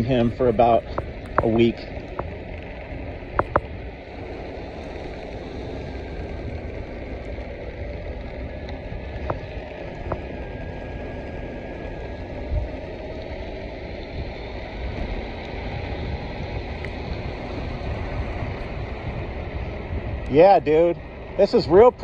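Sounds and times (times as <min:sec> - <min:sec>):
air noise: 0:00.0 - 0:22.0
skateboard wheels rumbling on asphalt: 0:00.0 - 0:22.0
sharp clicks: 0:03.3 - 0:03.7.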